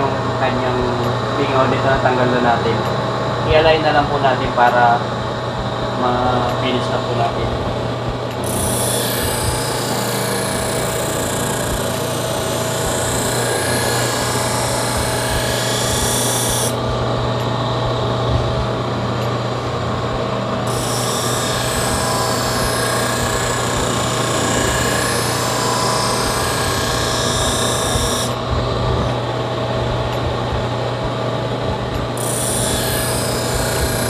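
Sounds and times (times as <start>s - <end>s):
bench grinder motor running: 6.4s - 30.8s, 31.6s - 34.0s.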